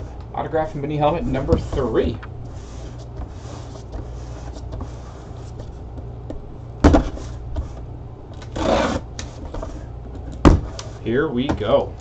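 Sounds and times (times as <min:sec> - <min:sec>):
low electrical hum: 0:00.0 - 0:12.0
knock against box: 0:10.4 - 0:10.7.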